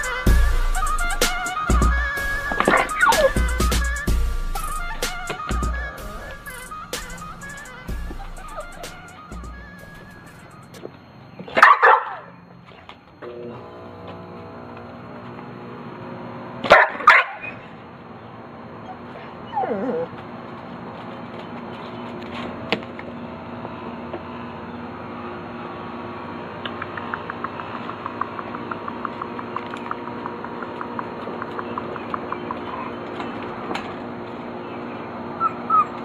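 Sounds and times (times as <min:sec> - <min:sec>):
dog whining: 0:01.9 - 0:09.2, 0:18.8 - 0:20.2, 0:35.3 - 0:36.0
dog barking: 0:11.5 - 0:12.3, 0:16.7 - 0:17.6.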